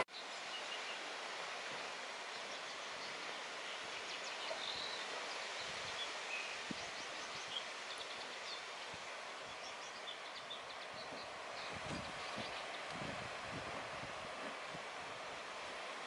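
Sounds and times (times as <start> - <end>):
wind rustling grass and trees: 0.0 - 16.0.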